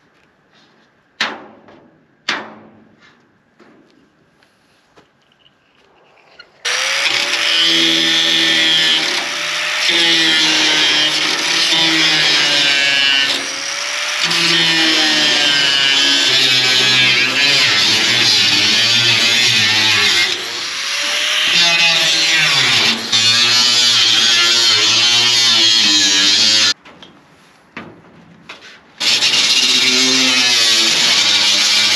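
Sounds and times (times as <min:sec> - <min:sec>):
angle grinder cutting metal: 0:06.4 - 0:26.8, 0:29.0 - 0:31.9.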